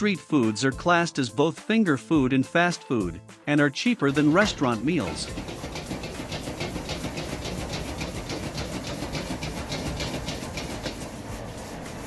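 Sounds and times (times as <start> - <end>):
gas burner flame rushing: 4.2 - 12.0.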